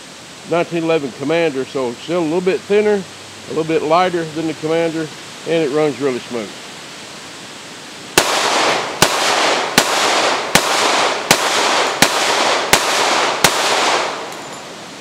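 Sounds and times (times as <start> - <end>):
pistol shots with echo: 8.2 - 14.4.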